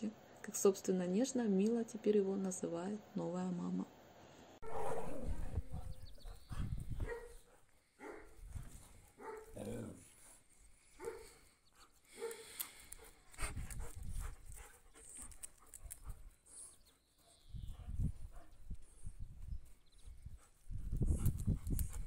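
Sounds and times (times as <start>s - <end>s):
dogs yipping and growling: 4.6s - 5.9s.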